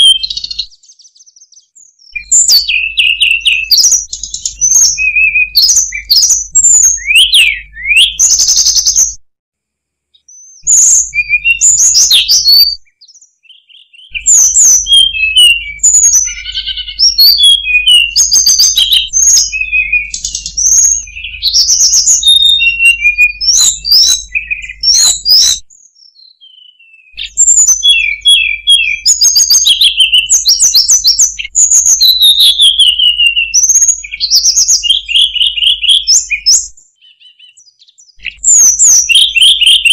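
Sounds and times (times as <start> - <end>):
bird singing whistled phrases: 0.0 - 9.2, 10.2 - 39.9.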